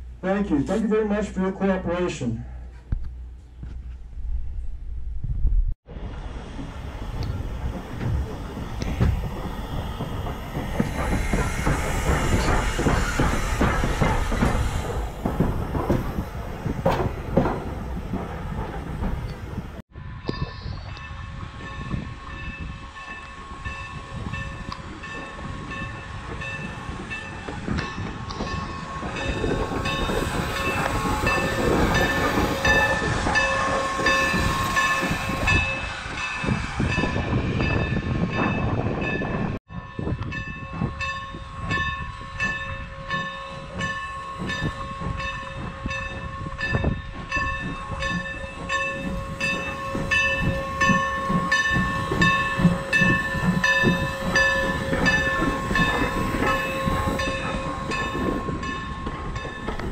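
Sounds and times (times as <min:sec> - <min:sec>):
steam locomotive passing: 0:05.9 - 0:59.9
locomotive bell ringing: 0:20.0 - 0:59.9.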